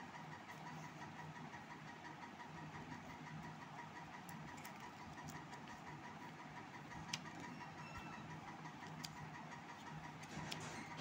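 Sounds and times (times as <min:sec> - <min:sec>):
faint background hum: 0:00.0 - 0:11.0.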